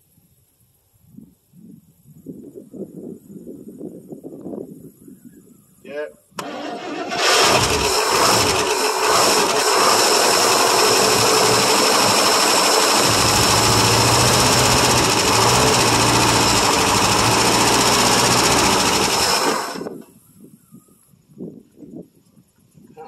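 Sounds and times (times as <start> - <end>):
engine running loudly: 7.1 - 20.0.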